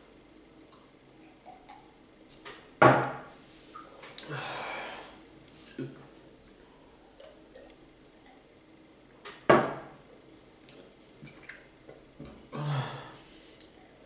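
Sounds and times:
breathy exhale: 4.3 - 5.2.

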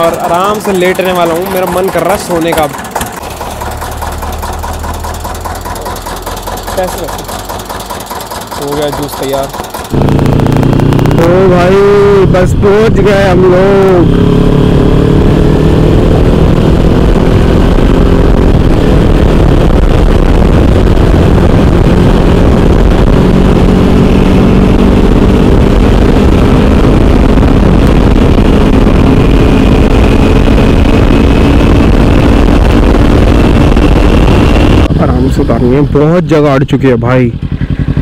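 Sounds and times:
motorcycle engine running: 0.0 - 38.0
wind rumble on microphone: 9.9 - 35.5.

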